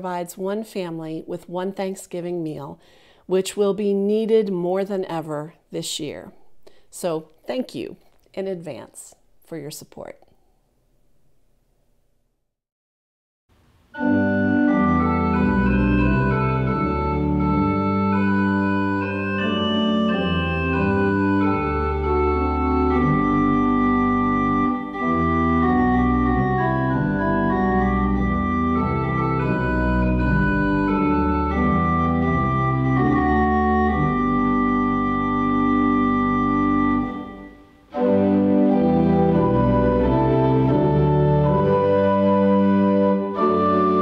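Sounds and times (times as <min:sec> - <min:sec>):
organ playing slow chords: 0:13.9 - 0:44.0.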